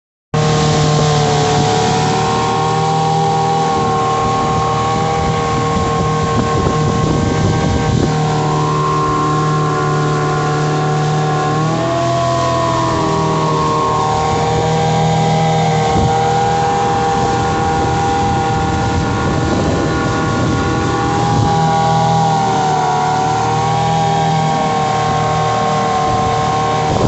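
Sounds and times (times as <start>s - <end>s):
outboard motor running: 0.4s - 27.0s
water rushing past hull: 0.4s - 27.0s.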